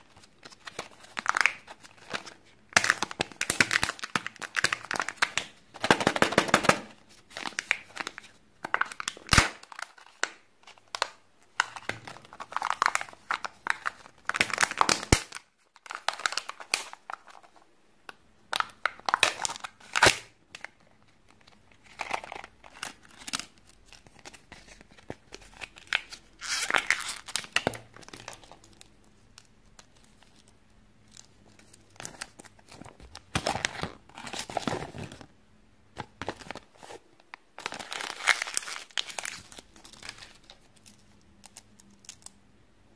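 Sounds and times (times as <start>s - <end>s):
foil and plastic crinkling: 37.6s - 41.0s.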